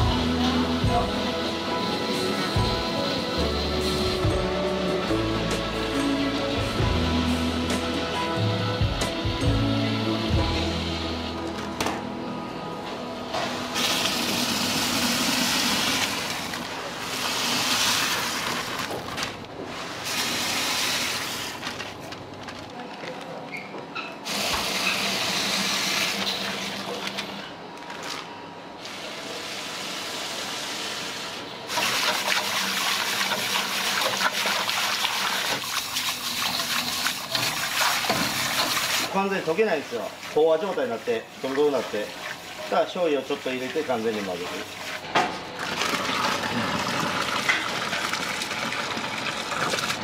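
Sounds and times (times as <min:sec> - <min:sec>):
whisk stirring: 0:32.0 - 0:45.0.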